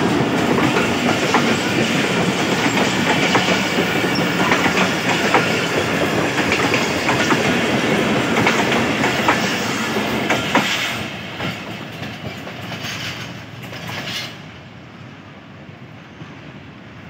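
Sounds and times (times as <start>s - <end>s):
train wheels clicking on rail joints: 0.0s - 14.6s.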